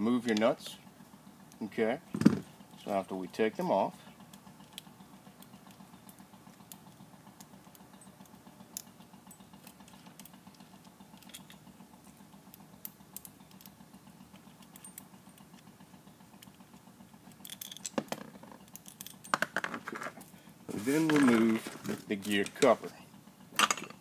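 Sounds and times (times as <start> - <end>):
low steady hum: 0.0 - 24.0
metal nuts and washers clicking: 8.7 - 11.7, 14.4 - 15.7, 17.2 - 20.2, 23.6 - 24.0.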